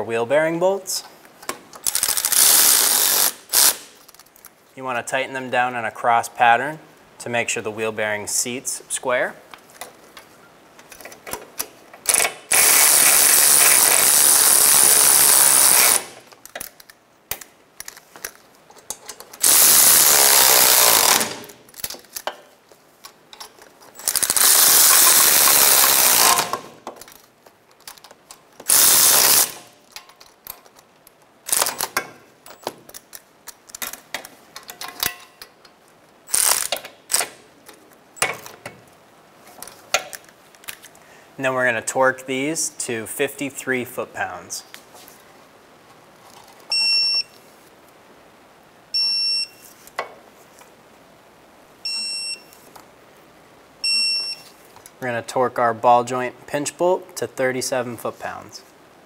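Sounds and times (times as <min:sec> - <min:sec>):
power ratchet running bolts: 0:19.4 - 0:21.4, 0:24.0 - 0:26.6, 0:28.7 - 0:29.6
short sharp ratchet clicks: 0:36.3 - 0:37.4.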